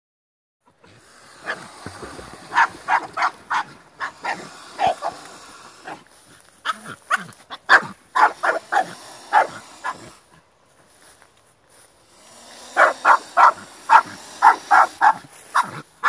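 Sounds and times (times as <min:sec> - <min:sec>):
dog barking: 0:02.4 - 0:05.2, 0:06.6 - 0:10.0, 0:12.8 - 0:15.8.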